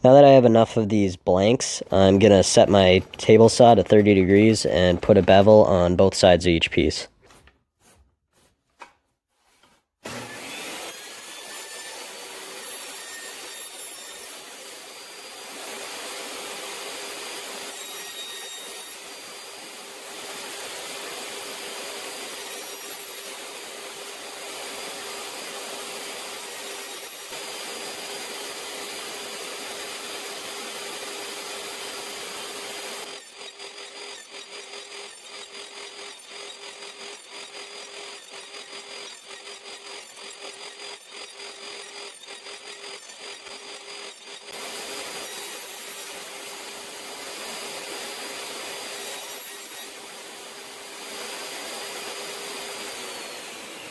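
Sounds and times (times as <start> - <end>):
table saw cutting wood: 0.9 - 6.4, 8.8 - 53.9.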